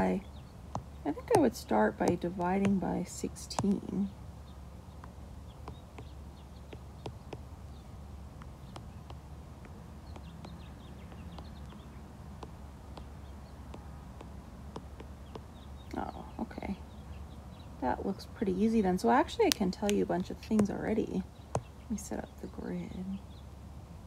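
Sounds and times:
steady low hum: 0.0 - 24.0
stylus tapping on glass screen: 5.6 - 7.4, 8.4 - 13.1, 13.7 - 15.5.

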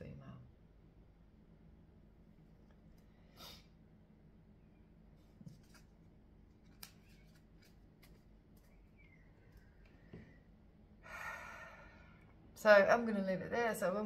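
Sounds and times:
faint room hum: 0.0 - 14.0
cards rustling: 5.5 - 8.9
light clicks of cards: 6.5 - 8.8.

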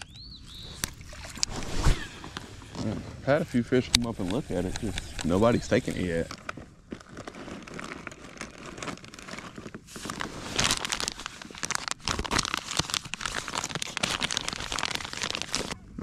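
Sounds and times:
plastic bags crinkling: 3.6 - 15.8.

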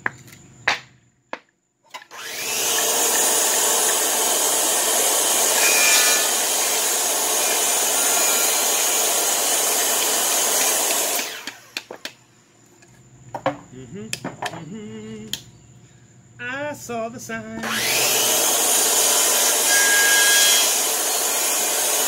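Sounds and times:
circular saw cutting wood: 2.0 - 11.9, 17.6 - 22.0.

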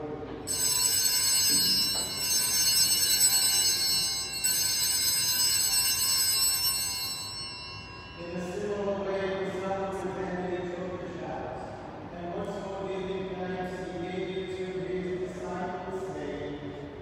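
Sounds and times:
small altar bells ringing: 0.4 - 10.0.

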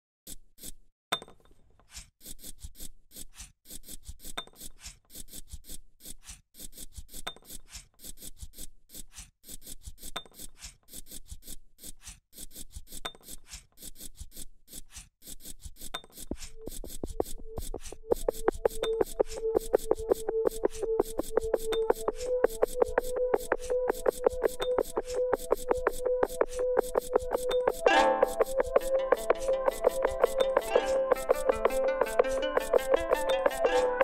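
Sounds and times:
chalk scraping on wooden boards: 0.3 - 0.9, 1.7 - 34.0
pulsing music tone: 18.1 - 34.0.

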